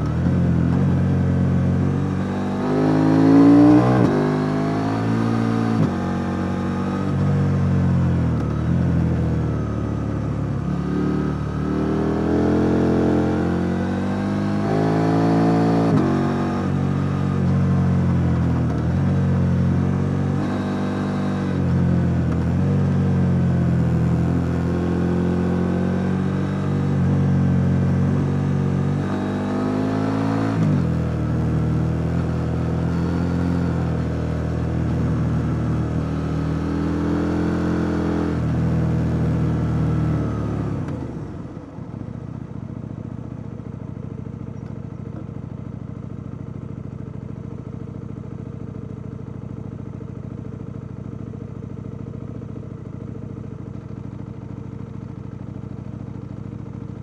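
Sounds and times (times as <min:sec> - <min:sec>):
motorcycle engine revving: 0:00.0 - 0:09.4, 0:10.0 - 0:41.6.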